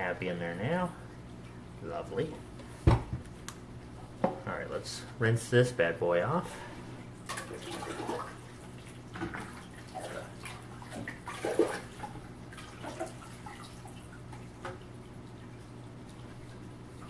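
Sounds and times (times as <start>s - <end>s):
water sloshing in a bucket: 7.0s - 17.0s.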